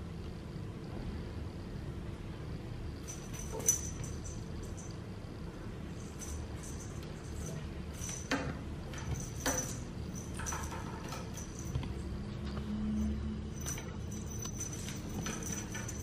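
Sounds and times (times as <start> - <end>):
steady low hum: 0.0 - 16.0
wand toy clicking on tiled floor: 6.1 - 12.0.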